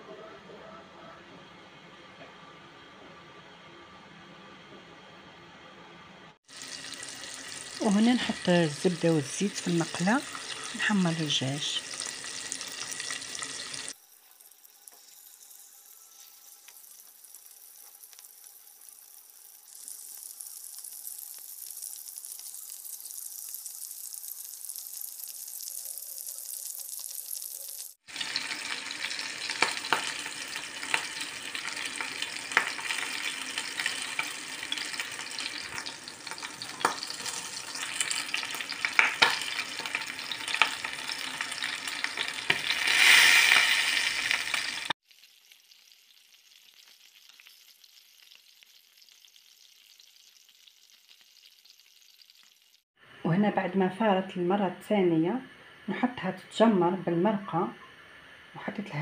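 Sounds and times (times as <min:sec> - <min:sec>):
chicken sizzling in a pan: 0:06.4 - 0:53.4
oil popping and crackling: 0:16.4 - 0:52.8.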